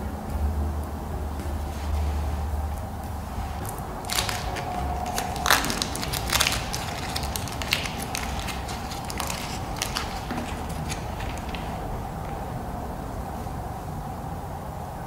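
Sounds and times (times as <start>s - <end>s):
steady low hum: 0.0s - 15.0s
paper liner crinkling and tearing: 3.4s - 12.4s.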